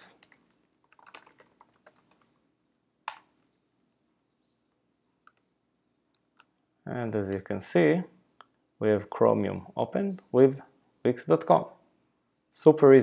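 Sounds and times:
typing on computer keyboard: 0.2 - 2.3.

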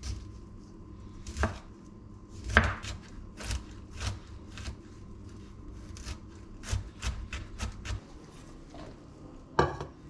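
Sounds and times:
knife chopping on wooden board: 1.3 - 1.7, 2.4 - 4.8.

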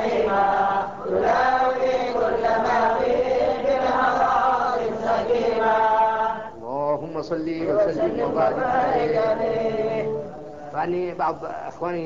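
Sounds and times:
man chanting: 6.6 - 12.0.

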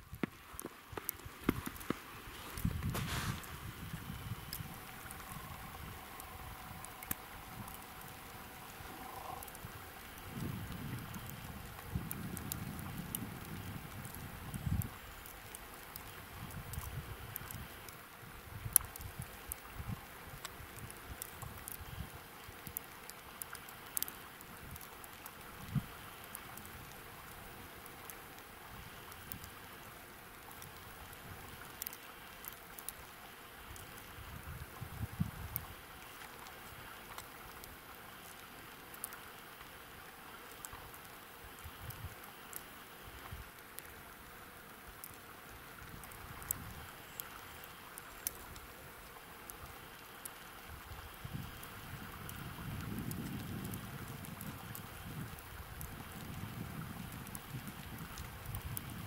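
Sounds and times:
wind rumble on microphone: 0.0 - 15.1, 16.0 - 22.8, 25.5 - 27.0, 33.7 - 35.8, 45.8 - 46.9, 50.7 - 59.0
faint steady hiss: 0.0 - 59.0
falling snow hiss: 0.1 - 18.3
sharp light ticks: 2.6 - 18.0, 18.6 - 34.2, 40.4 - 44.2, 45.0 - 59.0.

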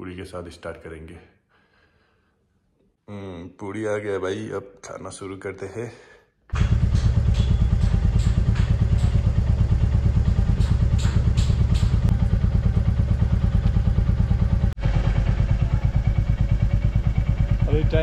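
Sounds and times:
motorcycle engine idling: 6.5 - 18.0.

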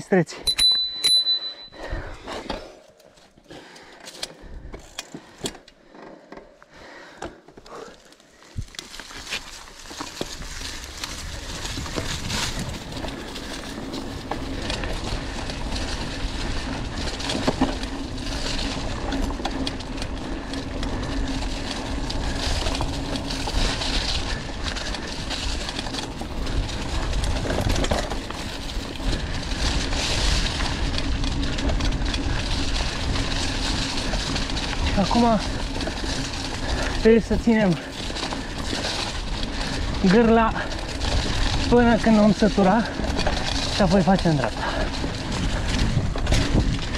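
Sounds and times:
bike tyre rumble and rattle: 0.7 - 46.9
wind across microphone: 10.3 - 17.1, 44.9 - 46.9.

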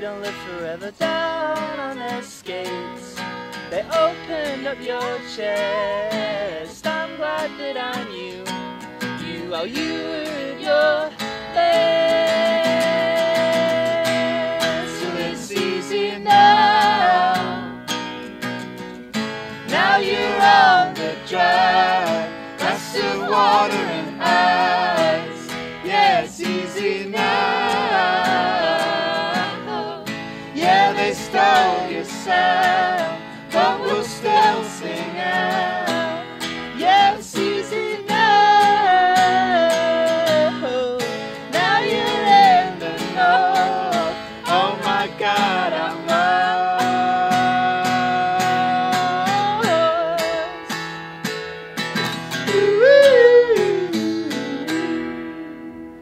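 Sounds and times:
acoustic guitar strummed: 0.0 - 56.0
voices singing in harmony: 9.2 - 17.8, 19.5 - 50.6, 52.4 - 56.0.

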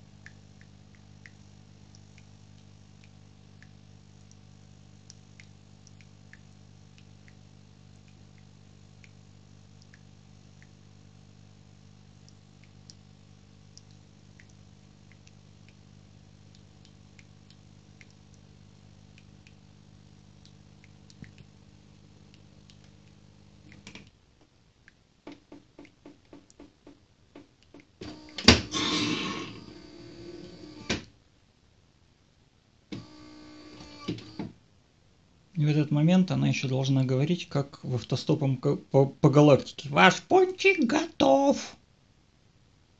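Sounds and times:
coffee dripping into cup: 0.1 - 10.8
espresso machine humming: 28.0 - 30.9, 33.0 - 34.4
loud machine noise: 28.7 - 30.2.

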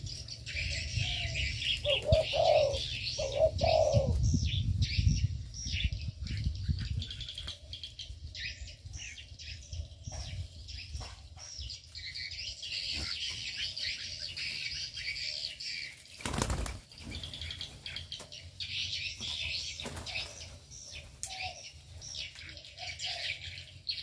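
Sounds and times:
small birds chirping: 0.0 - 24.0
wings fluttering: 16.0 - 18.3, 19.2 - 21.2.

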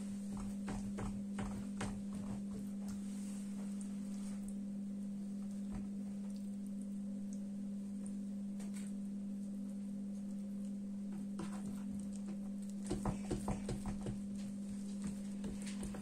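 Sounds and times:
steady low hum: 0.0 - 16.0
hands tapping dough on table: 0.3 - 2.7, 11.2 - 16.0.

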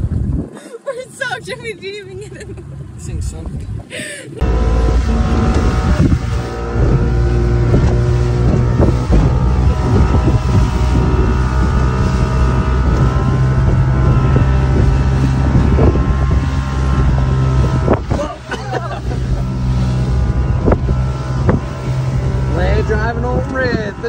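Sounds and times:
wind noise on microphone: 0.0 - 0.8, 2.8 - 24.0
motorboat engine running: 1.2 - 24.0.

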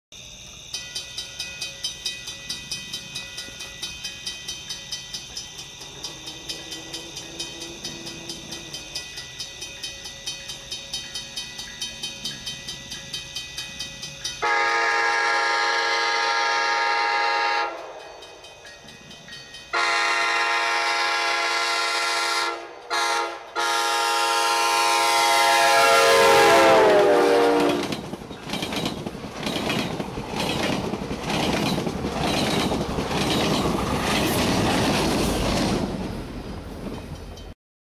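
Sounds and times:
crossing bell ringing: 0.2 - 25.0, 37.1 - 37.6
train rumbling and clattering: 0.6 - 25.3, 26.1 - 37.6
train air horn: 14.4 - 18.0, 19.7 - 28.0.

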